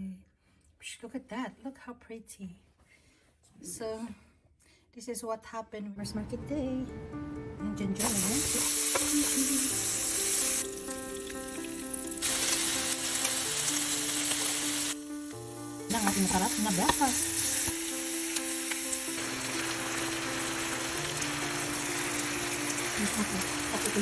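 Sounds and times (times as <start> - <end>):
faint background music: 5.0 - 24.0
meat sizzling in oil: 8.0 - 24.0.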